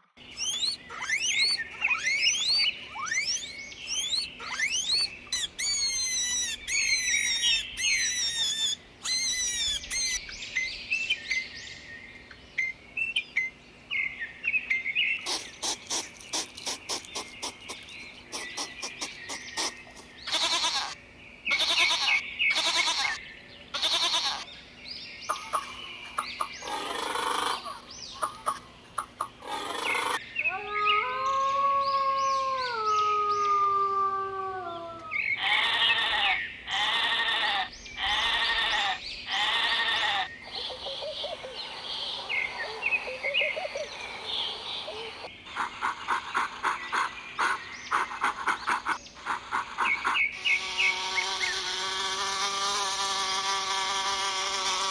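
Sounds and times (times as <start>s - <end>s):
short arched animal calls: 15.2s - 23.2s, 48.2s - 54.9s
goat bleating: 20.3s - 23.2s, 23.8s - 24.4s, 35.4s - 40.3s
wolf howling: 30.4s - 35.2s.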